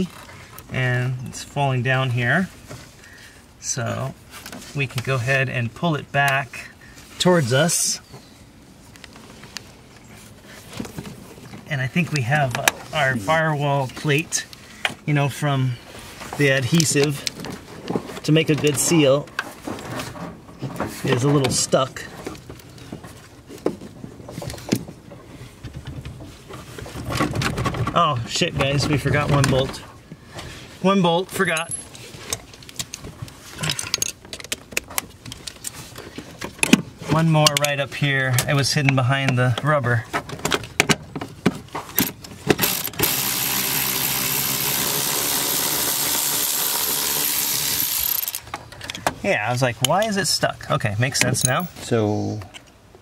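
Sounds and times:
power tool running: 42.6 - 48.4.

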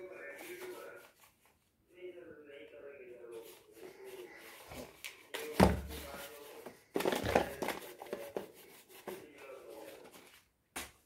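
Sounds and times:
plastic toys clattering: 6.9 - 8.4.

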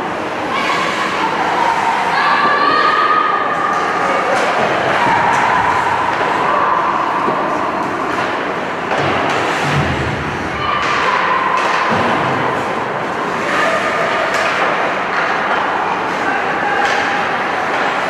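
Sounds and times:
skates and sticks on ice: 3.7 - 18.0.

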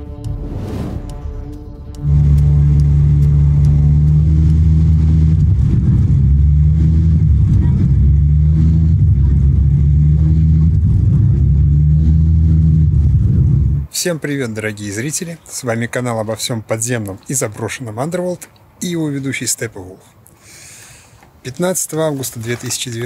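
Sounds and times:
airliner cabin engine rumble: 0.0 - 13.9.

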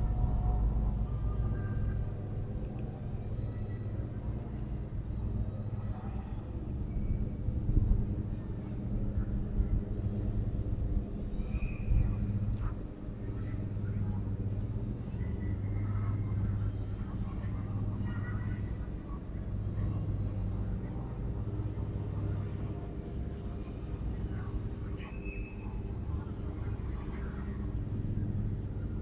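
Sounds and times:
low motor hum: 0.0 - 29.0.

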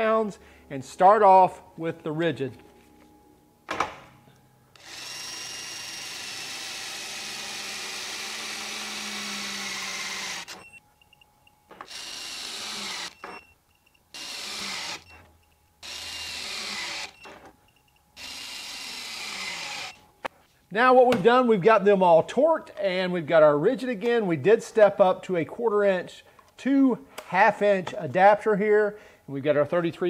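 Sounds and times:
torque wrench motor whining: 4.7 - 10.8, 11.7 - 13.5, 14.1 - 17.5, 18.2 - 20.0.

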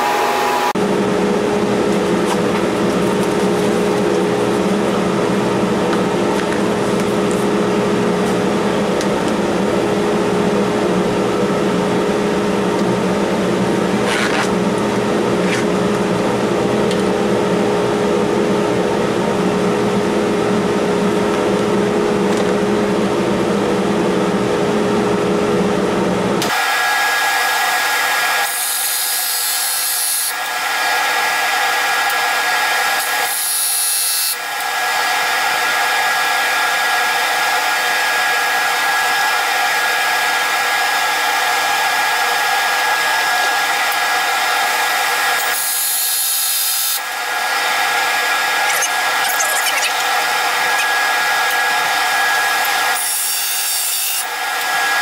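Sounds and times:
sped-up lathe whine: 0.0 - 2.6, 26.4 - 55.0.

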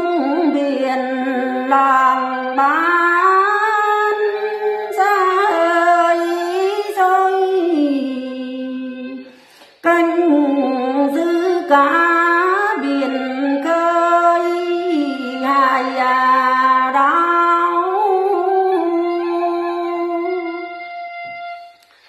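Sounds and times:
woman singing folk song: 0.0 - 20.8.

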